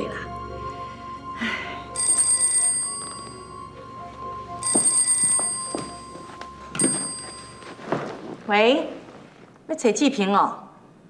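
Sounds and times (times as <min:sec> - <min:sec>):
telephone ringing: 0:01.9 - 0:08.0.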